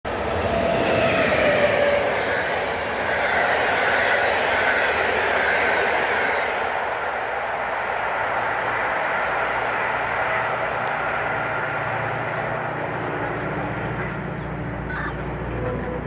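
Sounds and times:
train wheels rushing on rails: 0.1s - 16.0s.

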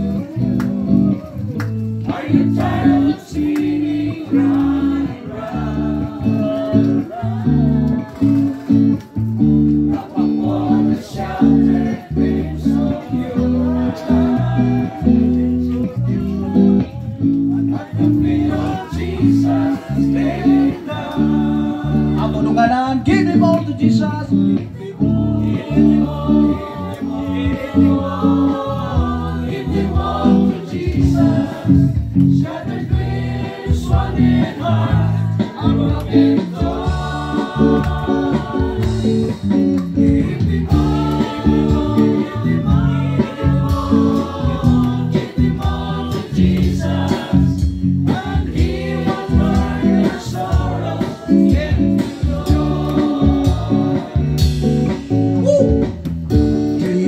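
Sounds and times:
group singing gospel song: 0.0s - 22.8s, 23.7s - 55.9s
guitar accompaniment: 0.0s - 57.0s.

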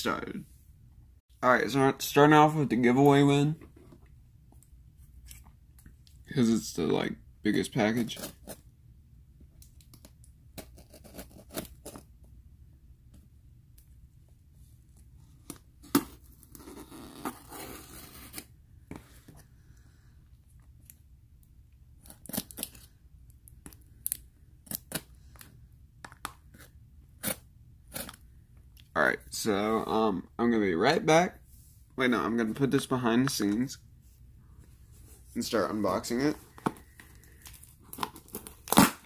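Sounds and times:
packing tape being slit and scraped: 15.8s - 18.5s, 22.0s - 22.8s, 37.4s - 39.0s
tape ripping: 37.4s - 39.0s.

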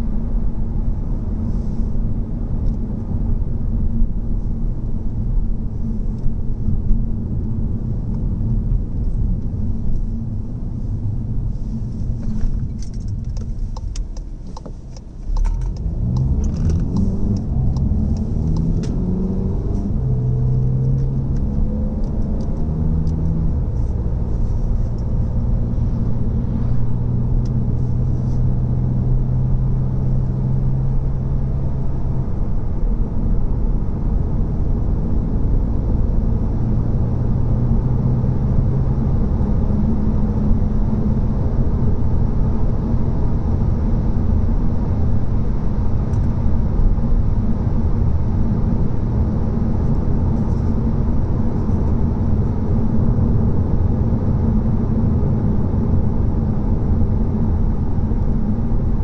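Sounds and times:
car engine: 0.0s - 59.0s
tyre and road rumble: 6.1s - 30.3s.

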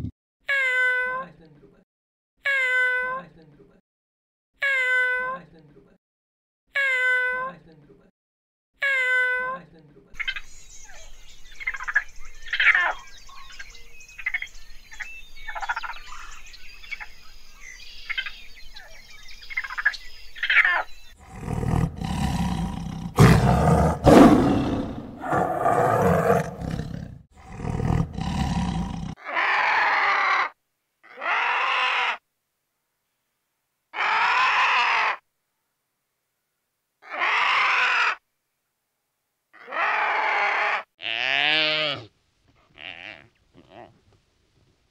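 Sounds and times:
harsh roar-like animal calls: 21.2s - 32.2s, 39.6s - 40.9s.

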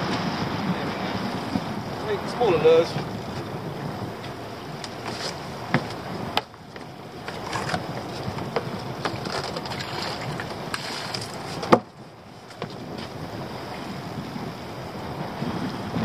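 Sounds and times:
sea noise: 0.0s - 16.0s
wind on microphone: 0.0s - 16.0s
knocks of gear in boat: 1.3s - 13.2s.

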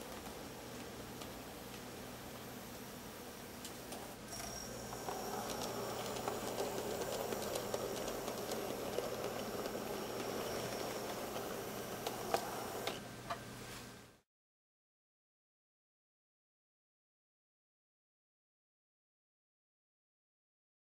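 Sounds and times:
model train wheels rattling: 4.4s - 13.0s.

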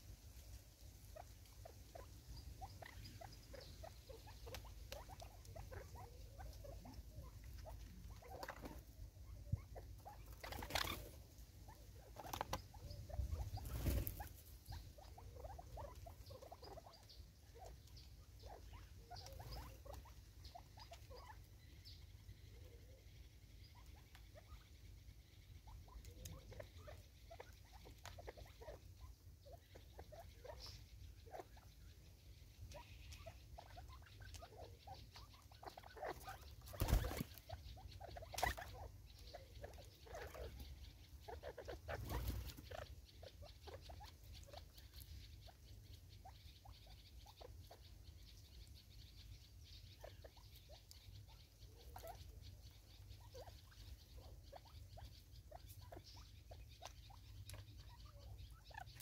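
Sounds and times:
birds scuffling: 0.1s - 21.5s, 32.6s - 45.2s.

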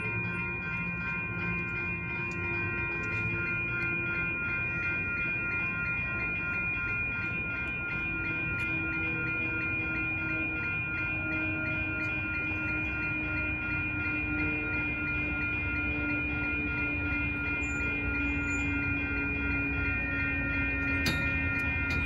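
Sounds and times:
crossing warning bell ringing: 0.0s - 22.0s
train low rumble: 0.0s - 22.0s.

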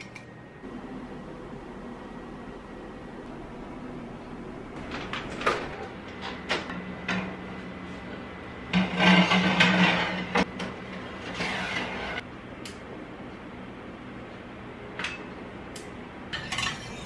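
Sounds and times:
oven door shutting: 4.7s - 7.5s
metal tray clattering and scraping: 8.6s - 12.2s, 16.3s - 17.0s.

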